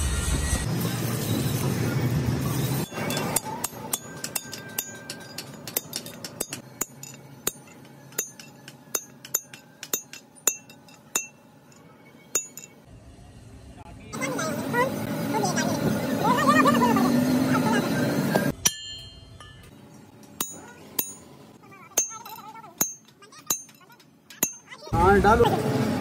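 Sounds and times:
hammer striking metal punch: 0:02.8 - 0:11.5, 0:12.3 - 0:12.8, 0:18.5 - 0:19.8, 0:20.4 - 0:21.3, 0:22.0 - 0:24.7.

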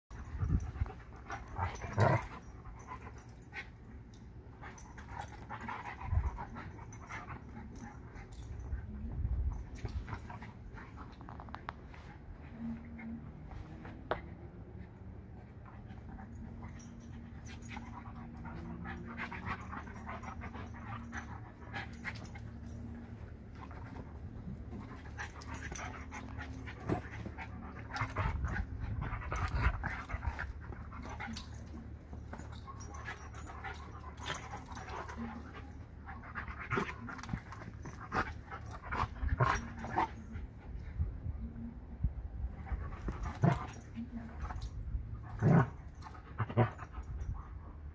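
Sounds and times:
dogs panting and snuffling: 0:00.1 - 0:41.5, 0:42.3 - 0:47.9.

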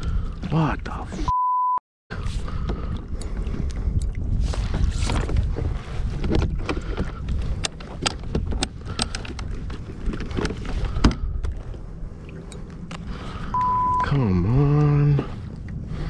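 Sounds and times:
wind buffeting microphone: 0:02.1 - 0:13.6, 0:14.4 - 0:16.0
clicks and knocks of fishing gear: 0:02.5 - 0:11.8.

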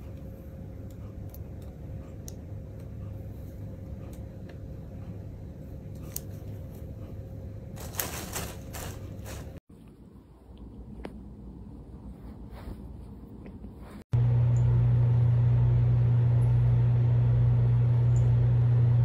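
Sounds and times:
low room hum: 0:00.0 - 0:19.0
plastic sheeting crinkling: 0:07.8 - 0:09.6.

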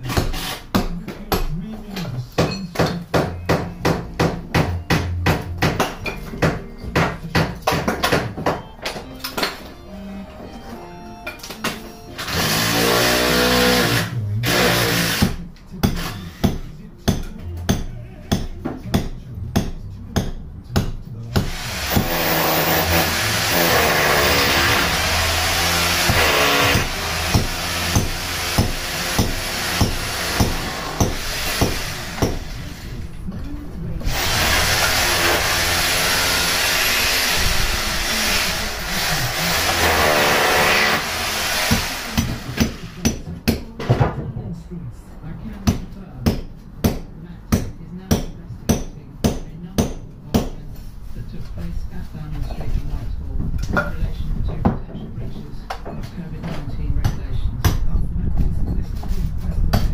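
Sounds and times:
power tool grinding brick: 0:12.2 - 0:15.4, 0:21.4 - 0:32.9, 0:34.1 - 0:43.0.

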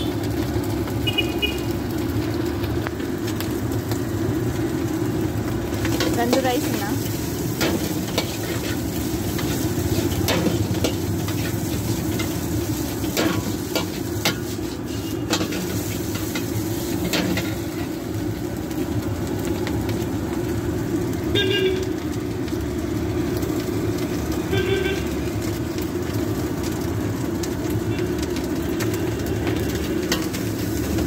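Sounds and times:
rice sizzling in a wok: 0:00.0 - 0:31.0
metal ladle scraping a wok: 0:07.3 - 0:17.9.

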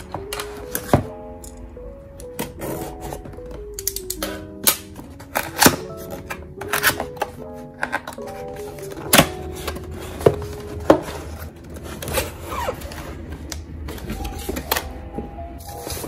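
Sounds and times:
soft background music: 0:00.0 - 0:16.0
cardboard rustling: 0:04.3 - 0:14.9.

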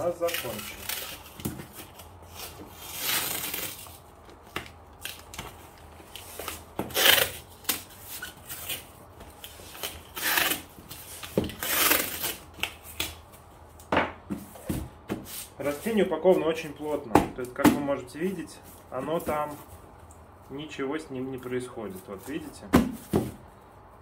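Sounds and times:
tape ripping off roll: 0:00.2 - 0:04.0, 0:06.2 - 0:13.2.

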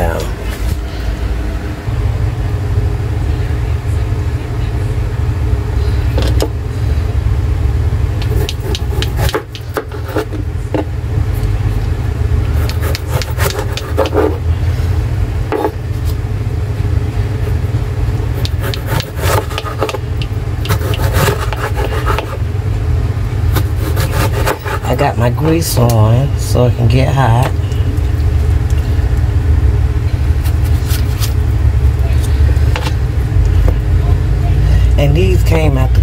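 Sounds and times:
steady low hum: 0:00.0 - 0:36.0
utensils and cookware clicking: 0:08.2 - 0:10.1.

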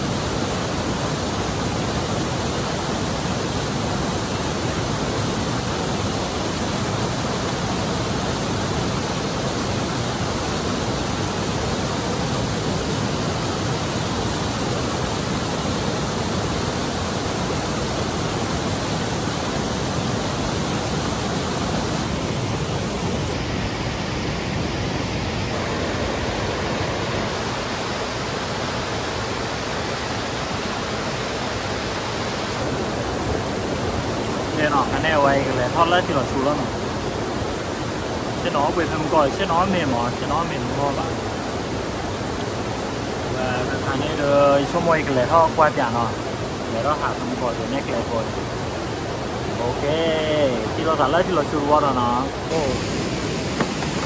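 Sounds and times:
waterfall pouring: 0:31.5 - 0:48.3.

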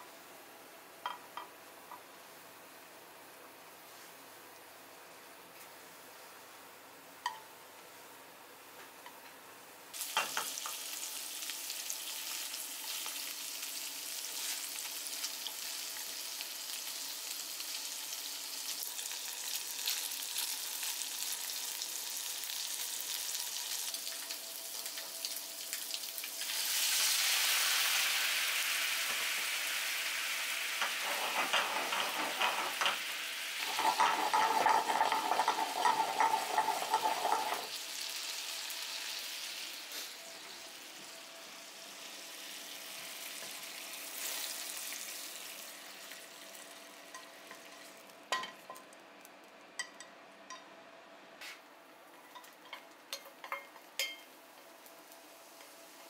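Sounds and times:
fish sizzling in a frying pan: 0:10.0 - 0:48.1, 0:53.4 - 0:56.0.

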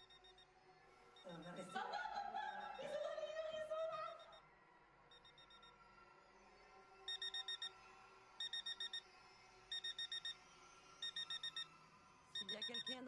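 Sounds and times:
electronic alarm beeping: 0:00.0 - 0:00.5, 0:01.2 - 0:01.8, 0:02.5 - 0:03.0, 0:04.0 - 0:04.4, 0:05.1 - 0:05.7, 0:07.1 - 0:07.8, 0:08.4 - 0:09.1, 0:09.7 - 0:10.4, 0:11.0 - 0:11.7, 0:12.4 - 0:13.0.

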